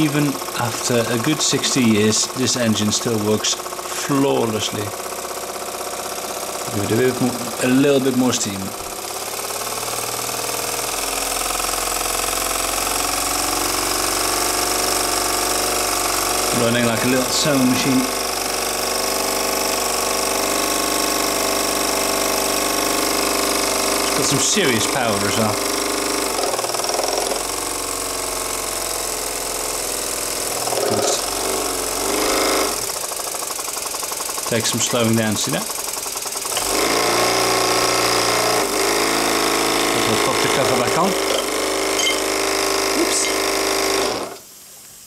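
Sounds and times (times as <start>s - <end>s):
model steam engine running fast: 0.0s - 44.4s
model steam engine clattering: 30.4s - 37.1s.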